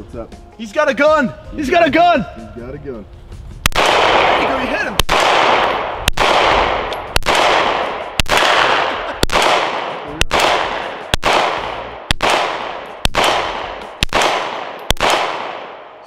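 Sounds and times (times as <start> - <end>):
pistol shots with echo: 3.6 - 16.0.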